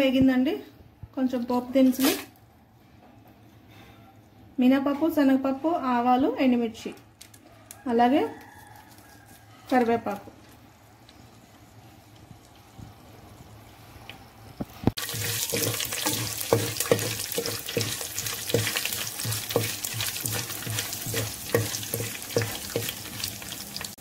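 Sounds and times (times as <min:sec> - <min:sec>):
hot oil sizzling and crackling: 0:11.0 - 0:24.0
spatula scraping a pot: 0:15.0 - 0:23.6.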